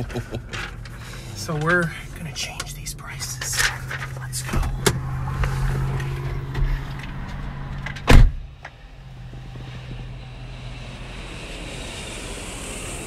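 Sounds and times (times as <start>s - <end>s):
idling car hum: 0.0s - 13.0s
car door thud: 7.8s - 8.6s.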